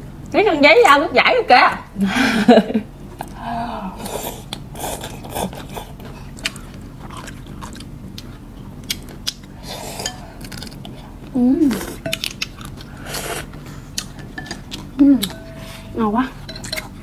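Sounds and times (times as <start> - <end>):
noodles slurped and chewed: 4.0 - 11.0.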